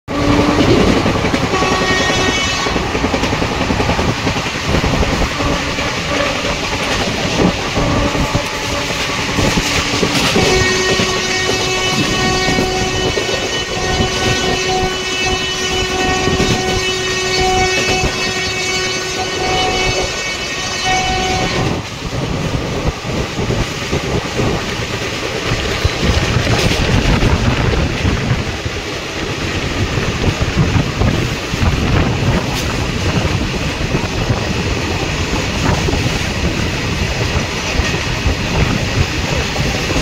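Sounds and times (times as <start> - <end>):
train wheels clattering on rails: 0.1 - 40.0
steady horn-like tone: 1.5 - 3.0, 5.2 - 21.8.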